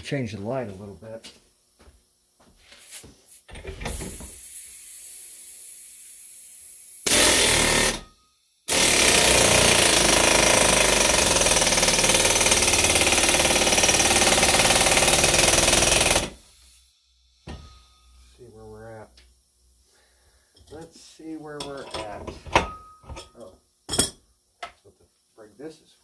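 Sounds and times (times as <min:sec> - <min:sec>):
steady air hiss: 0:00.1 - 0:07.1, 0:16.4 - 0:22.4, 0:23.3 - 0:26.0
pneumatic air gun hammering: 0:03.5 - 0:04.6, 0:07.0 - 0:16.8.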